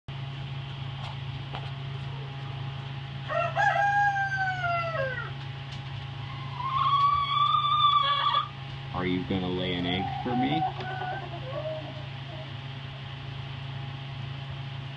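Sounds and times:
rooster crowing: 3.2 - 5.4, 6.2 - 8.5, 9.8 - 12.8.

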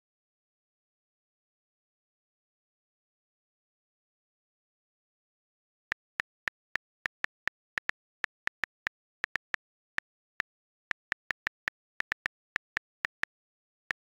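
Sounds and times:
on-screen keyboard key clicks: 5.9 - 14.0.

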